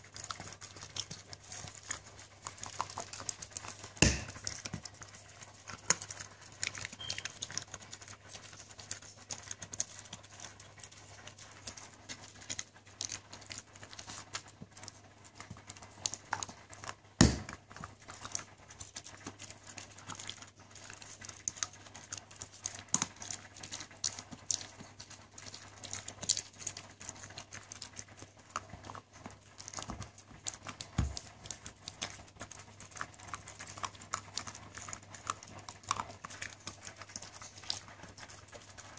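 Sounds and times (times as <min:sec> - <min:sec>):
dog gnawing chew treat: 0:00.0 - 0:38.9
knock: 0:04.0 - 0:04.3, 0:17.2 - 0:17.5.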